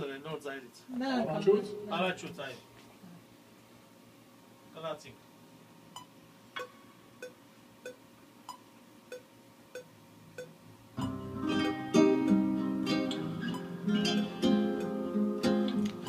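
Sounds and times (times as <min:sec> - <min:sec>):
classical guitar playing: 0:11.0 - 0:16.0.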